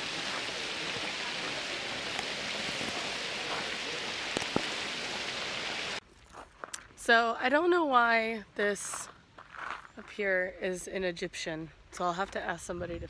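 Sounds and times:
water splashing in fountain: 0:00.0 - 0:06.0.

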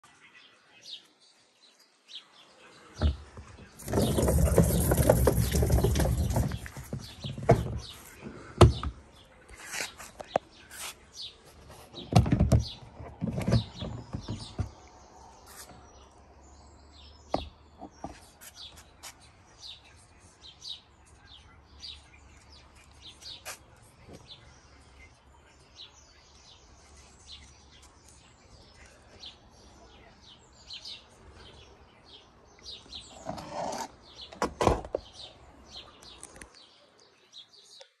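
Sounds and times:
small birds chirping: 0:00.0 - 0:38.0
plastic lid knocks and clatter: 0:12.0 - 0:14.7.

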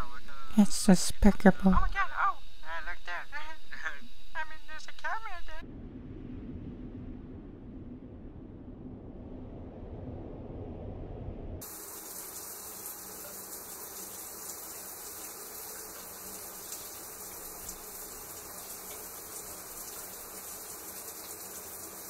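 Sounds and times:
low rumble: 0:05.5 - 0:11.6
shower water spraying: 0:11.6 - 0:22.0.

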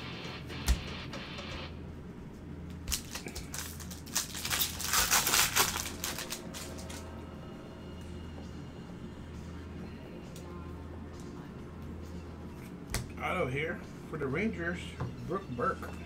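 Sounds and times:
wrapper crinkling and tearing: 0:02.8 - 0:07.1.

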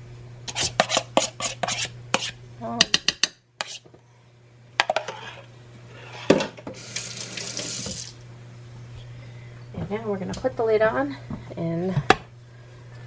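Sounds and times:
utensil scraping ceramic crock: 0:00.5 - 0:02.4, 0:03.6 - 0:03.8.

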